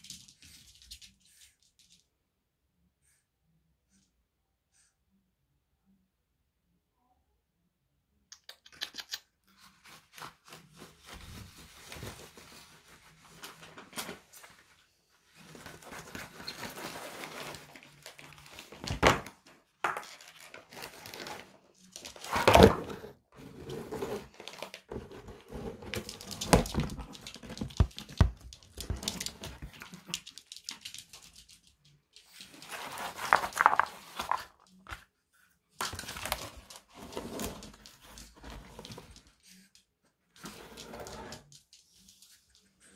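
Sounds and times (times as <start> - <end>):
rustling and crinkling: 9.5 - 42.9.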